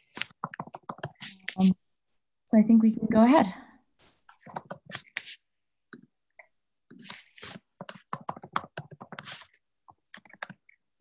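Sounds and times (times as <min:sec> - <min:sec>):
typing on computer keyboard: 0:00.2 - 0:01.3, 0:07.8 - 0:10.8.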